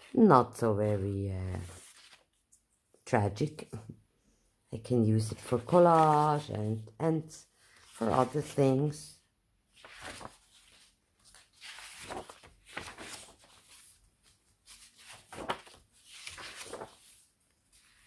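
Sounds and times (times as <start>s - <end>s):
paper rustling: 0.9s - 2.7s, 5.2s - 6.9s, 7.6s - 9.0s, 9.7s - 18.0s.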